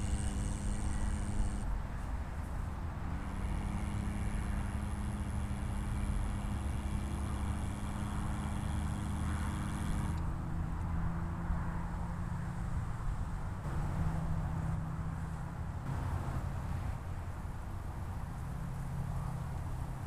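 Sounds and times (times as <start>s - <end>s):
steady machine hum: 0.0s - 11.1s.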